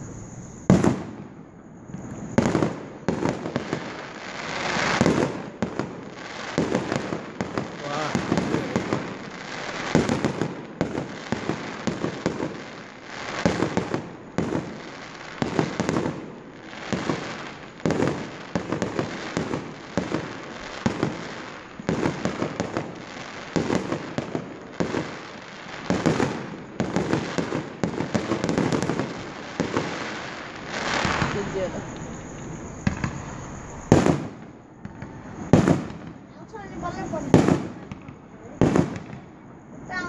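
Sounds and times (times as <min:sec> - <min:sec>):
rapid firework crackling: 0:02.0 - 0:37.9
firework shells bursting: 0:25.9 - 0:36.2.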